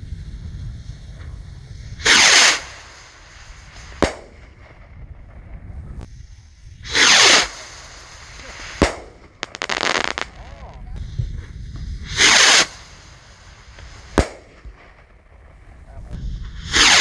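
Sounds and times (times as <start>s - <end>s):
firework rocket whooshing: 1.8s - 11.0s, 11.8s - 15.6s, 16.5s - 17.0s
firework bang: 2.0s - 4.9s, 6.9s - 10.8s, 12.1s - 15.1s.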